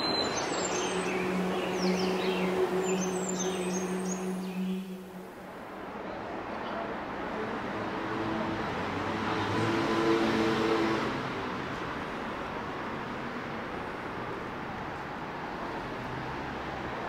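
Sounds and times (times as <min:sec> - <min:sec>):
vehicle passing: 0:00.0 - 0:05.8
street traffic hum: 0:00.0 - 0:17.0.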